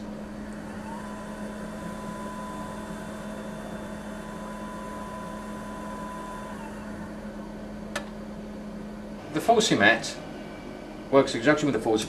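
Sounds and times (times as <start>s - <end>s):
low hum: 0.0s - 12.0s
polisher motor whining: 0.3s - 7.1s.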